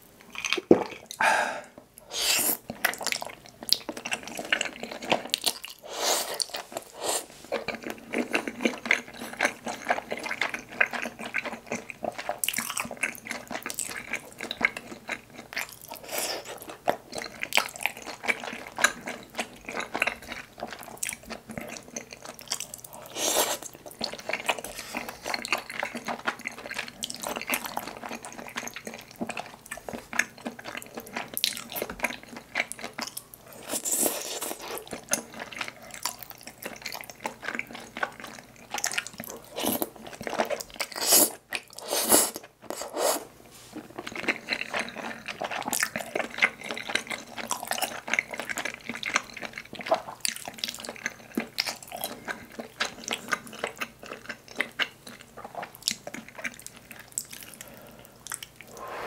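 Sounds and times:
slurping food: 1.2s - 2.6s, 5.8s - 7.5s, 23.0s - 23.7s, 40.8s - 43.9s
wet sticky chewing: 43.8s - 58.8s.

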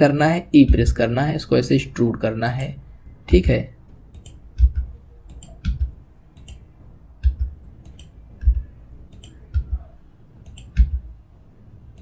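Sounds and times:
mouse and keyboard clicks: 4.1s - 6.6s, 7.2s - 9.8s.

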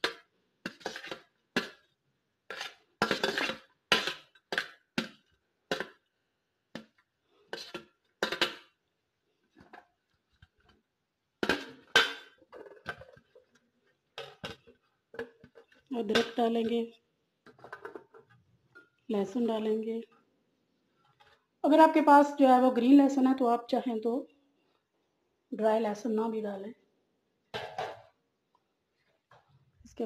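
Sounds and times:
scraping on steel plate: 0.6s - 1.2s, 2.5s - 4.3s.

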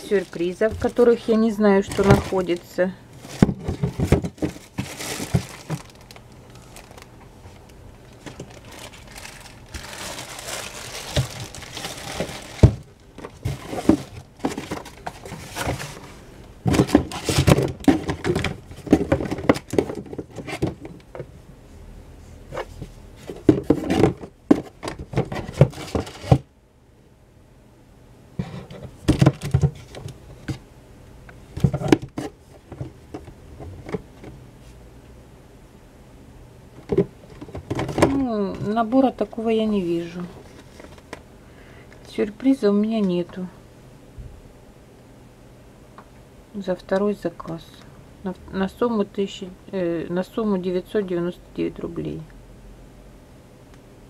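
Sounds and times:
plastic packaging crinkling: 0.0s - 16.1s
plastic bottles knocking together: 1.8s - 2.6s, 3.3s - 6.1s, 8.2s - 15.9s, 29.0s - 30.1s.

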